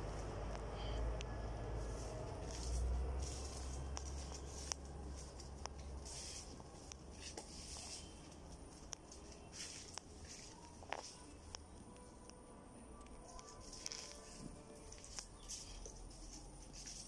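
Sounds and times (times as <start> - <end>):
leaves rustling: 1.8 - 11.4
footsteps through plants: 1.8 - 11.7, 13.3 - 17.0.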